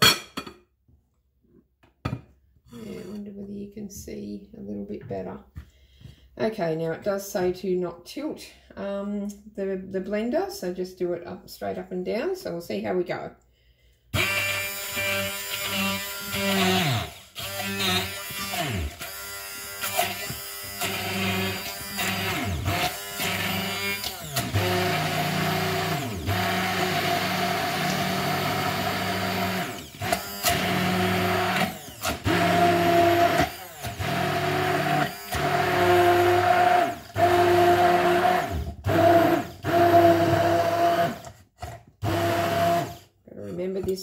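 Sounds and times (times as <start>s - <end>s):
immersion blender motor pulsing: 14.2s - 43.1s.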